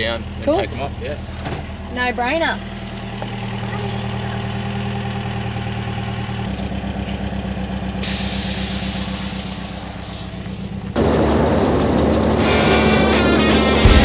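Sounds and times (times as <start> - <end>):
van engine idling: 0.0 - 14.0
air hissing from tyre valve: 8.0 - 10.8.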